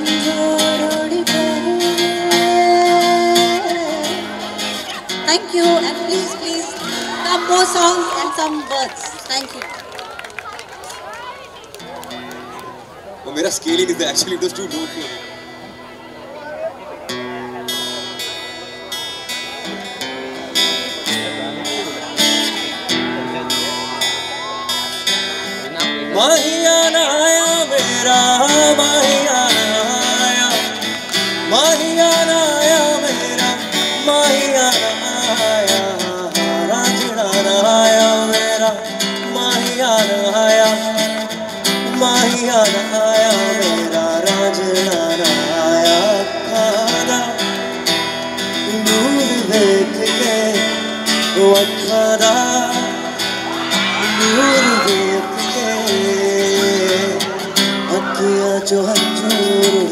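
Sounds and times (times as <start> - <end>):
man singing into microphone: 0.0 - 8.2, 26.0 - 59.9
strummed acoustic guitar: 0.0 - 9.0, 13.2 - 59.9.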